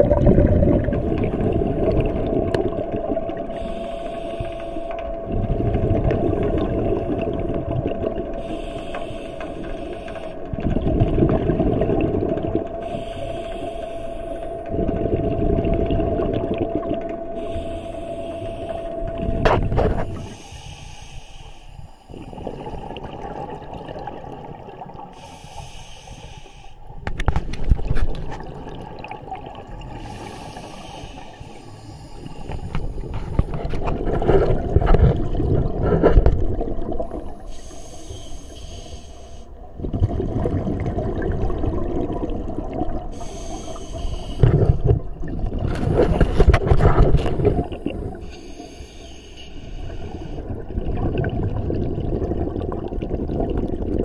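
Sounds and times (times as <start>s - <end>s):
exhaust bubbles rushing: 0.0s - 3.4s, 10.6s - 12.7s, 33.0s - 37.2s, 39.8s - 43.1s, 50.4s - 54.0s
regulator inhale hiss: 3.5s - 5.0s, 8.4s - 10.6s, 12.8s - 14.7s, 17.3s - 23.0s, 25.1s - 26.9s, 29.9s - 33.4s, 36.9s - 39.6s, 43.1s - 44.9s, 47.2s - 50.5s.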